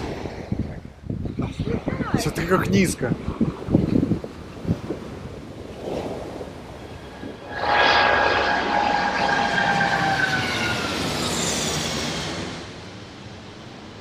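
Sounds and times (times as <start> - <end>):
jet airliner passing overhead: 6.2 - 14.0.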